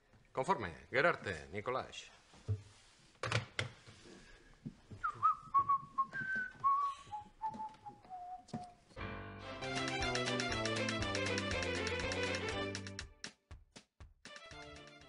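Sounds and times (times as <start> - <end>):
person whistling a tune: 5.0 - 8.6.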